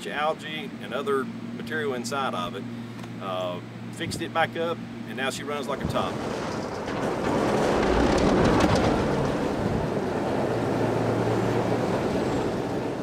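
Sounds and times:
diesel locomotive engine rumbling: 3.6s - 13.0s.

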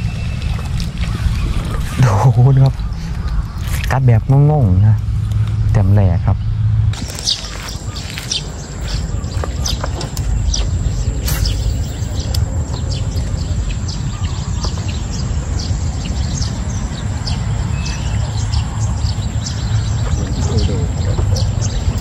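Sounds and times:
birds chirping: 0.0s - 22.0s
wind rumbling on microphone: 0.0s - 22.0s.

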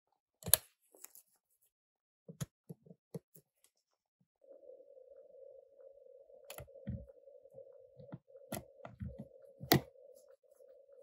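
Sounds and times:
steady hum: 4.4s - 11.0s.

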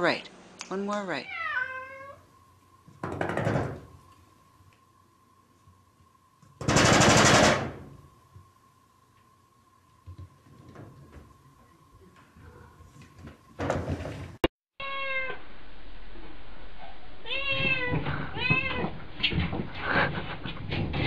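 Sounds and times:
cat meowing: 1.3s - 2.2s, 14.8s - 15.4s, 17.2s - 18.9s.

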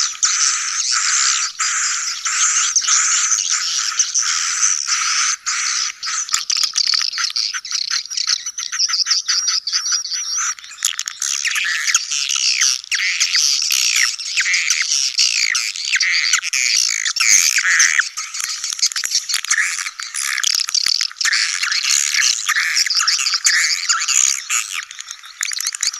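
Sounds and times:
swiftlets twittering: 0.0s - 6.4s
rapid bird clicks: 5.8s - 8.0s.

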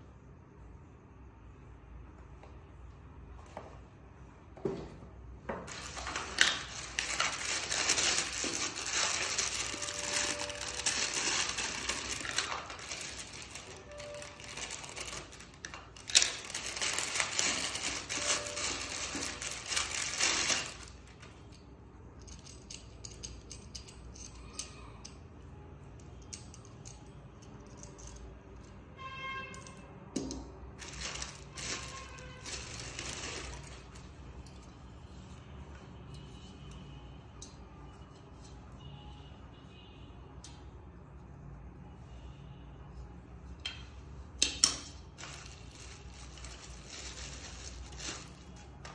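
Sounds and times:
plastic bags crinkling and tearing: 5.7s - 21.2s, 30.8s - 34.2s, 45.0s - 48.9s.

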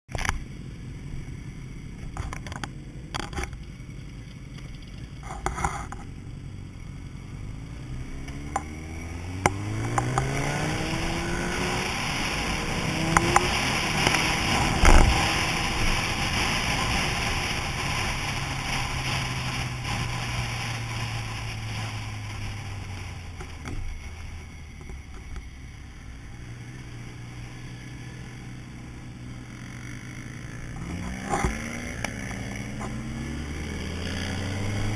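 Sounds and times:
motorcycle engine accelerating: 0.1s - 34.9s
wind rushing over microphone: 8.9s - 24.2s.

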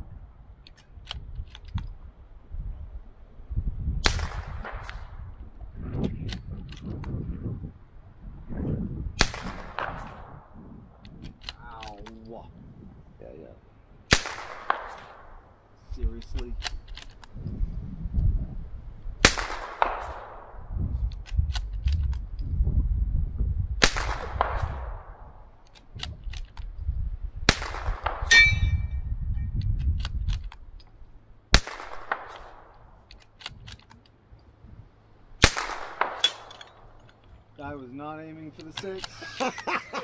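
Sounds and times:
rifle shots with echo: 4.0s - 5.2s, 9.2s - 10.6s, 14.1s - 15.5s, 19.2s - 20.7s, 23.8s - 25.4s, 27.5s - 28.6s, 31.5s - 33.0s, 35.4s - 37.0s.

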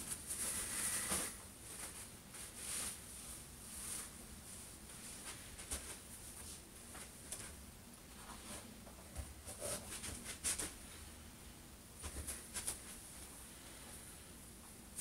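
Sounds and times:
clothing rustling: 0.0s - 8.7s.

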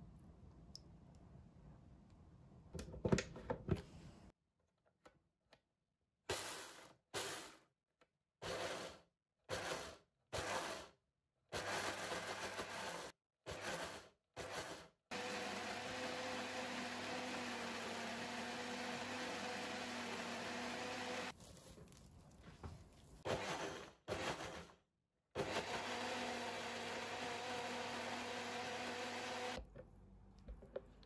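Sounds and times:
blender motor grinding: 8.4s - 10.9s, 11.6s - 21.4s, 23.3s - 24.7s, 25.4s - 29.6s.

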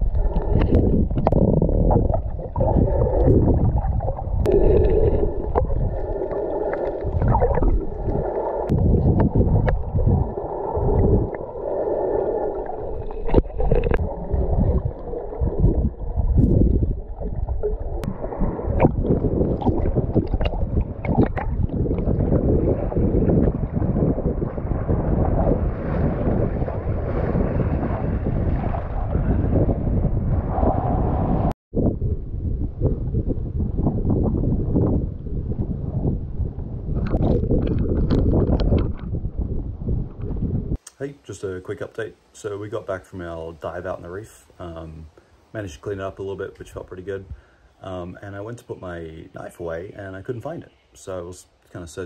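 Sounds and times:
underwater rumbling and gurgling: 0.0s - 40.8s.

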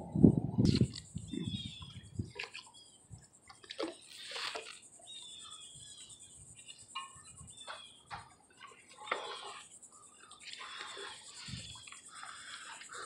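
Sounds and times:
birds chirping: 0.6s - 13.0s
water splashing and dripping: 2.3s - 2.7s, 3.5s - 4.8s.

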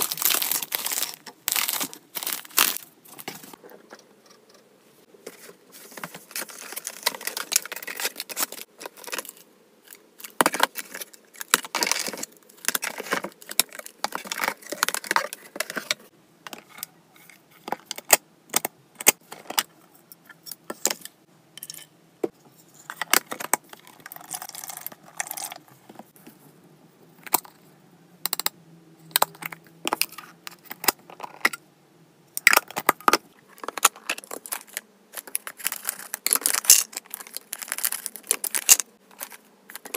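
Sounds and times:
packaging rustling: 0.0s - 3.6s, 5.3s - 16.0s, 33.5s - 39.9s.

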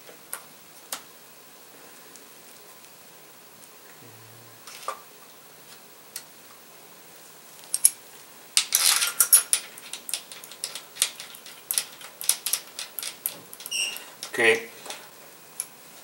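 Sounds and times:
small metal parts clinking: 8.6s - 15.0s.

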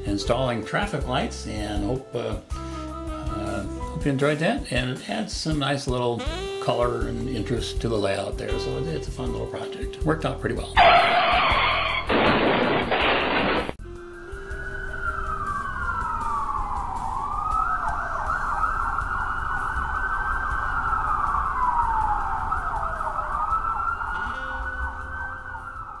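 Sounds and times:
siren wailing: 10.8s - 12.1s, 14.0s - 26.0s.

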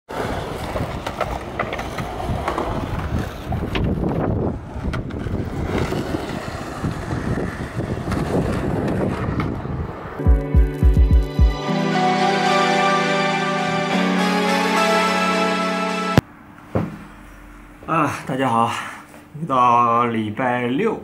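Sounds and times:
skateboard clacks: 0.1s - 10.0s
skateboards rolling on concrete: 0.1s - 11.3s
wind on microphone: 2.2s - 10.2s.

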